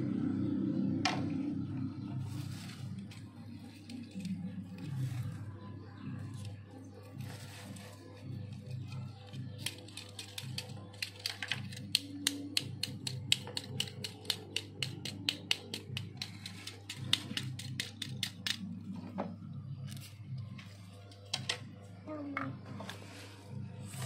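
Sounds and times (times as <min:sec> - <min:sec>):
background music: 0:00.0 - 0:24.0.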